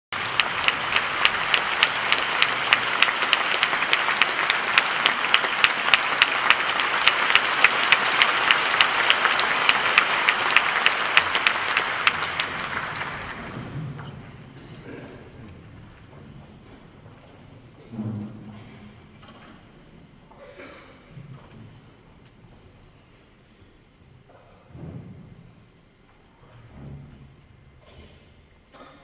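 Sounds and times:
audience applauding: 0.1 - 14.4
sharp nearby claps: 0.2 - 13.8.

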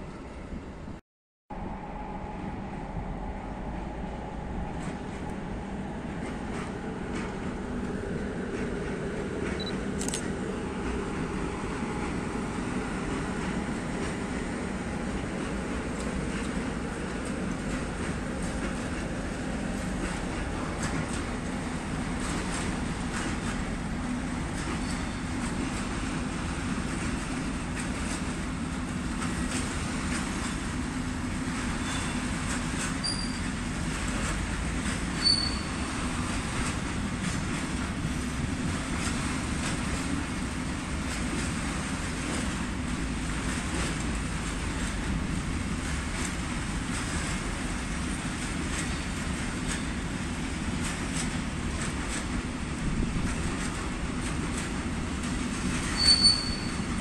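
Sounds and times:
freight train rumbling: 0.0 - 57.0
high wheel squeals: 31.8 - 32.3, 33.0 - 33.6, 35.2 - 35.9, 55.9 - 57.0.

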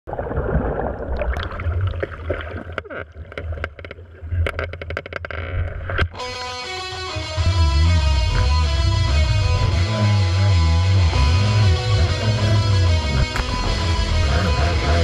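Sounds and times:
water gurgling: 0.1 - 6.1
guitar music: 6.2 - 15.0
muffled jet ski rumble: 7.2 - 15.0.

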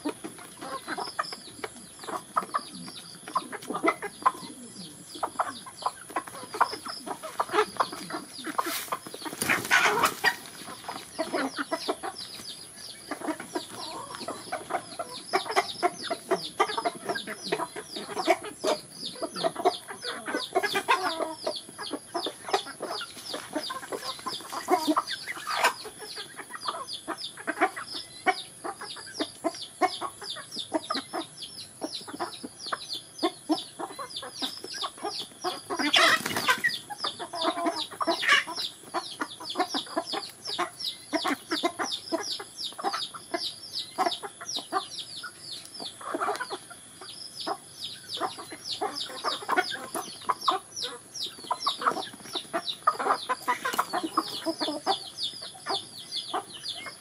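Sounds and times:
chickens clucking: 0.0 - 57.0
chicks peeping: 0.0 - 57.0.

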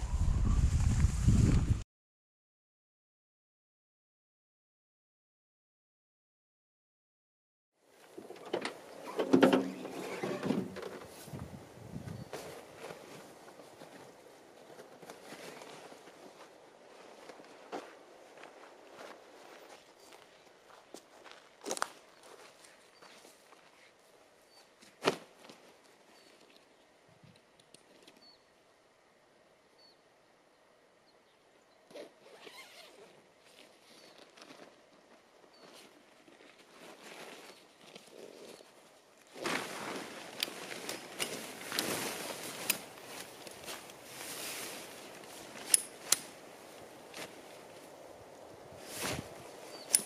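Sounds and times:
faint bird chirps: 24.4 - 24.7, 29.7 - 31.9
tent poles clicking: 39.2 - 47.9, 49.0 - 50.0
bag rustling: 39.3 - 46.1.

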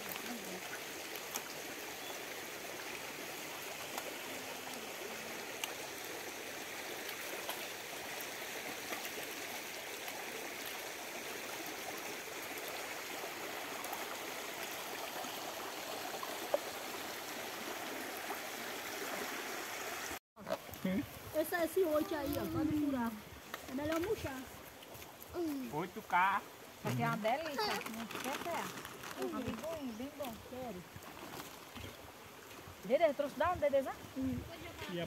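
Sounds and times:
running water rushing: 0.0 - 35.0.

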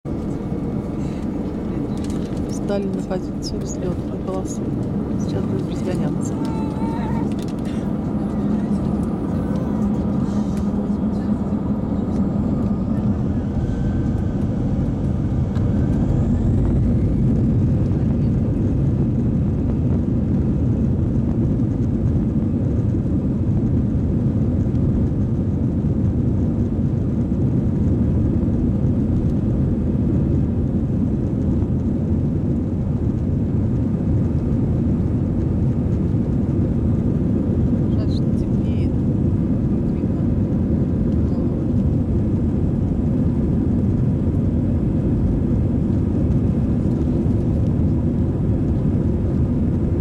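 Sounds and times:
jet engines spooling up: 7.1 - 18.0.

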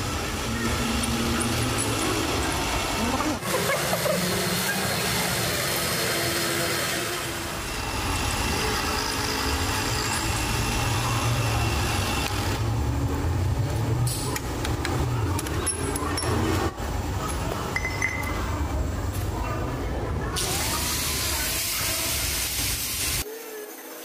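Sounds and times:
metal lathe humming: 0.4 - 12.8.

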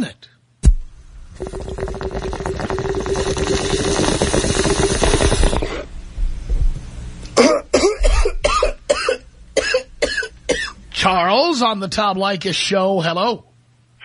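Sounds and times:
water bong bubbling: 0.7 - 6.0
person coughing harshly: 7.4 - 10.8.

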